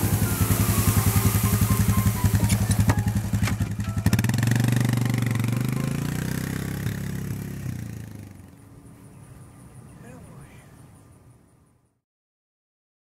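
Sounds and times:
atv engine running: 0.0s - 10.2s.

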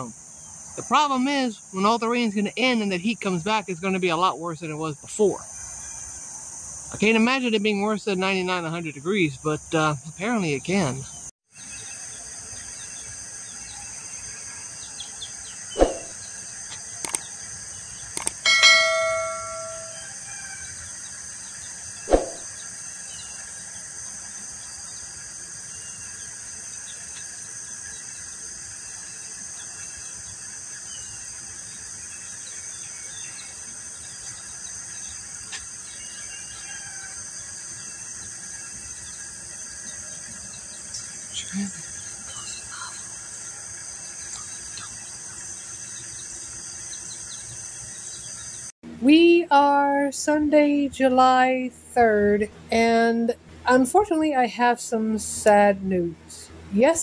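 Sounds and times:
bell-like chime: 18.4s - 20.1s
insects buzzing: 20.7s - 48.7s.

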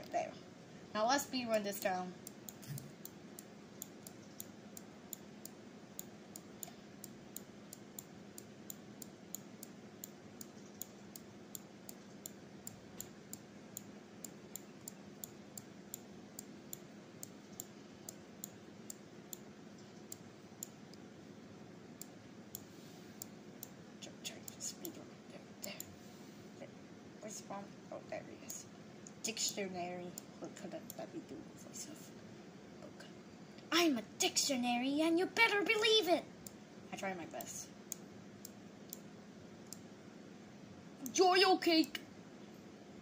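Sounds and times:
faint steady hum: 0.0s - 43.0s
computer mouse clicking: 1.5s - 21.0s, 30.0s - 31.1s, 37.3s - 39.9s.

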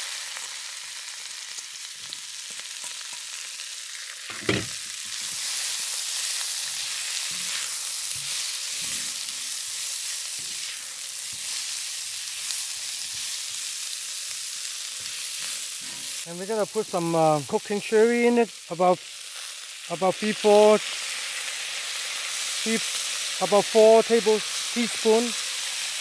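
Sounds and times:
vegetables sizzling in oil: 0.0s - 26.0s
spatula stirring in wok: 4.6s - 16.3s.

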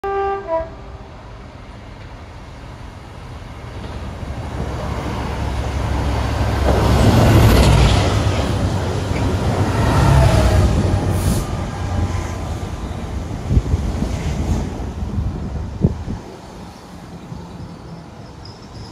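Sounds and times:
two-note train horn: 0.0s - 1.0s
rumble of trains passing: 0.0s - 18.9s.

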